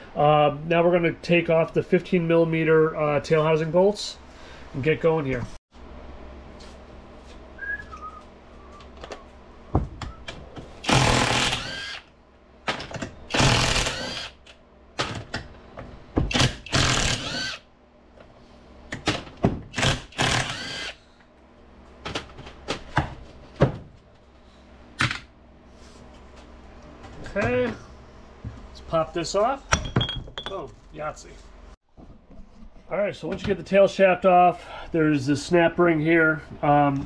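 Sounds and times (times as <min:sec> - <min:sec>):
power wrench spinning bolts: 0:16.3 - 0:17.6.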